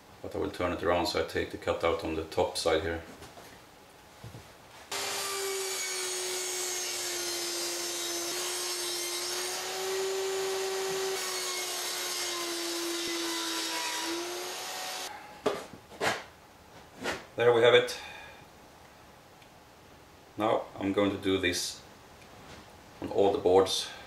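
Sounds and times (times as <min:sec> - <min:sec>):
table saw cutting wood: 0:04.9 - 0:15.1.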